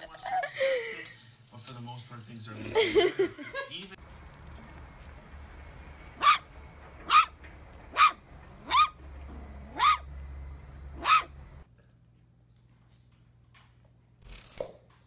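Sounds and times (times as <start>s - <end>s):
puppy barking: 6.1s - 9.0s, 9.6s - 10.2s, 10.9s - 11.5s.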